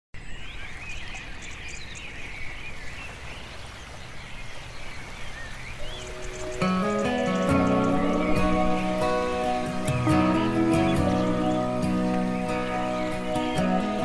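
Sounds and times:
birds chirping: 0.2s - 14.0s.

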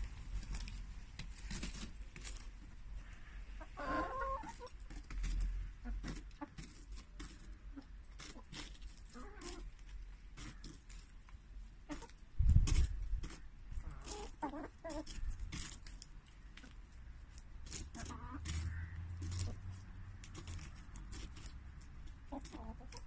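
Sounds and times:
beaks clicking on cabbage leaves: 0.3s - 3.2s, 4.4s - 23.0s
hens clucking: 3.0s - 9.8s, 11.8s - 12.2s, 12.8s - 15.8s, 17.7s - 23.0s.

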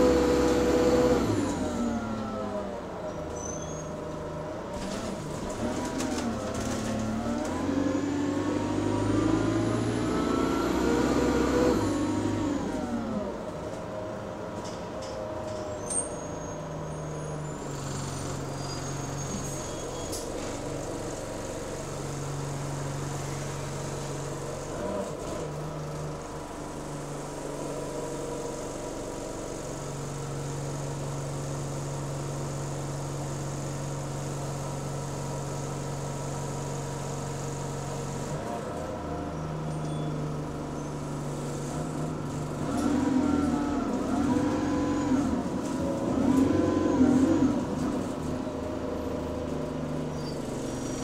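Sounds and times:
bus engine idling: 11.4s - 42.6s, 47.4s - 51.0s.

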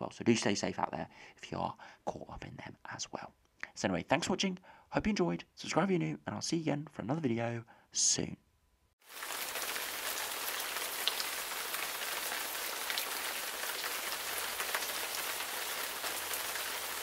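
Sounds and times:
rain falling: 9.0s - 17.0s.

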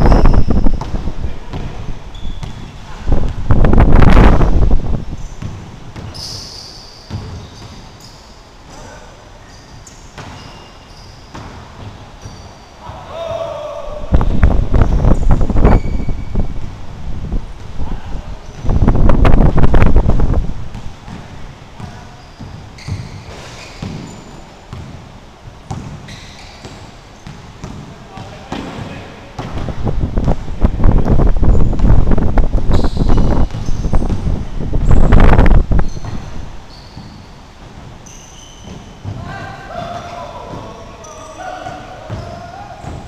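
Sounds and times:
shoes squeaking on hardwood floor: 0.0s - 4.1s, 5.1s - 12.9s, 14.7s - 16.4s, 20.7s - 25.0s, 25.7s - 29.0s, 32.6s - 43.0s
basketball bouncing: 0.0s - 6.2s, 7.1s - 8.0s, 9.8s - 10.4s, 11.3s - 12.4s, 18.5s - 25.1s, 25.7s - 36.4s, 42.1s - 43.0s
rush of noise on microphone: 0.0s - 6.2s, 12.8s - 22.2s, 27.9s - 36.7s.

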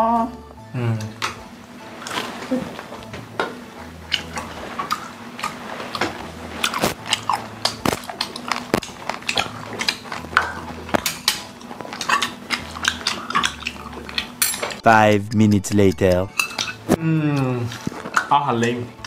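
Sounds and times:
chewing: 2.0s - 3.1s, 3.8s - 14.8s, 16.3s - 19.0s.

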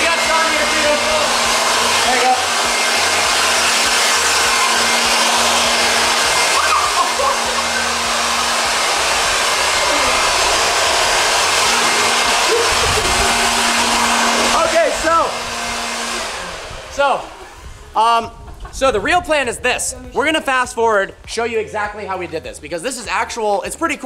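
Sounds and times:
leaf blower rushing air: 0.0s - 18.8s.

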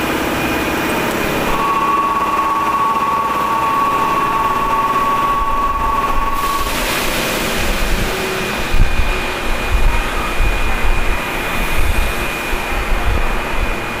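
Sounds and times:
high steady whistle: 0.0s - 10.8s
air compressor drone: 0.0s - 14.0s.

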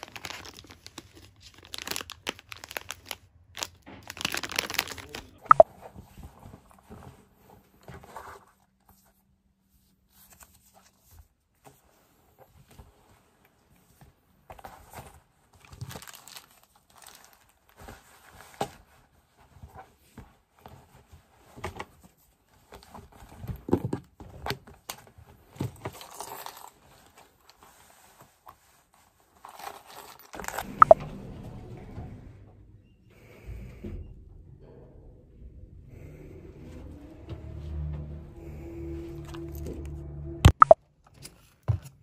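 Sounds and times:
rustling and knocks of belongings: 10.3s - 30.7s
steady low hum: 30.6s - 40.6s.

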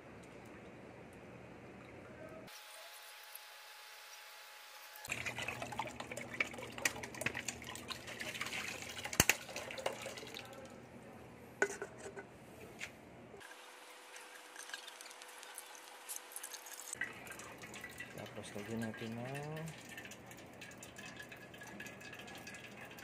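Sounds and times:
water splashing and dripping: 5.1s - 10.7s, 14.2s - 23.0s.

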